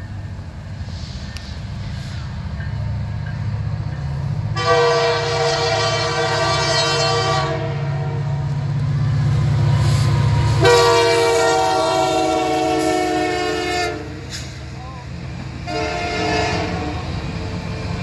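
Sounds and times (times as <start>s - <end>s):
diesel locomotive engine rumbling: 0.0s - 18.0s
multi-note air horn: 4.6s - 8.2s, 10.6s - 14.3s, 15.7s - 17.0s.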